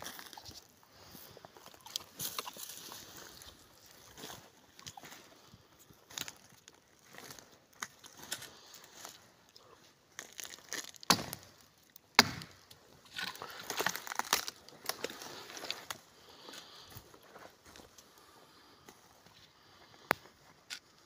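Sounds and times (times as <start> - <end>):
twigs snapping and cracking: 10.1 - 16.0.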